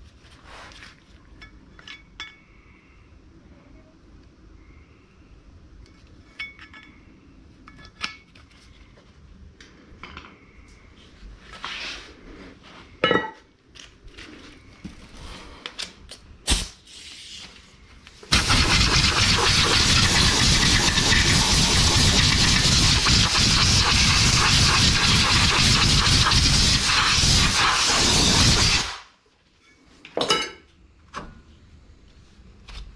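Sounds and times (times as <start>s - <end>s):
loud steady hiss: 18.2s - 29.2s.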